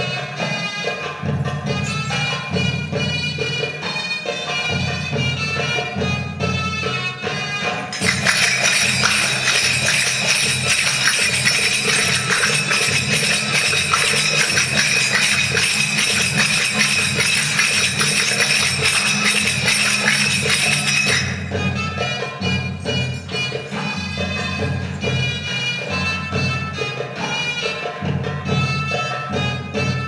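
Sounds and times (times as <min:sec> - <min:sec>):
fast jingling percussion: 0:07.9 - 0:30.0.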